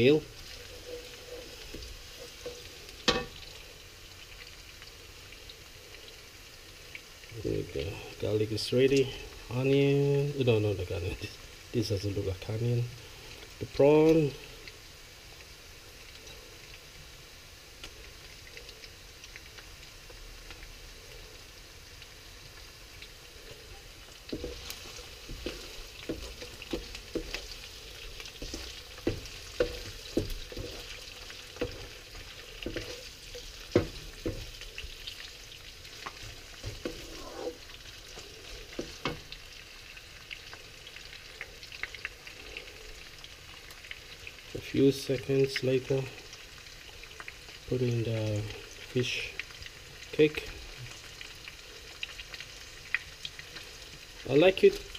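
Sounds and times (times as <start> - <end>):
wooden spatula scraping a wok: 0.0 - 3.8, 23.4 - 39.5
food sizzling in hot oil: 0.0 - 54.9.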